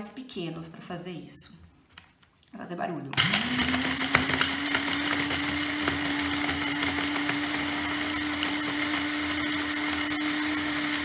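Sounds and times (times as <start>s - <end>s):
coffee grinder motor hum: 3.2s - 11.0s.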